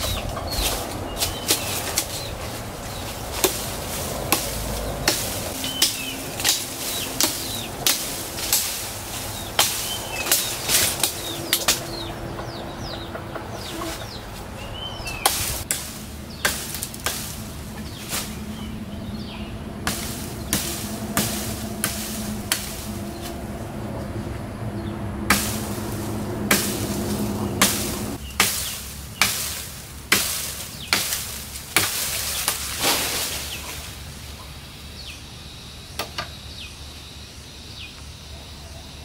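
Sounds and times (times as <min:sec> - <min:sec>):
twigs and branches snapping: 0:00.0 - 0:12.1, 0:14.4 - 0:23.5, 0:25.3 - 0:34.0
leafy branches rustling: 0:00.0 - 0:35.5.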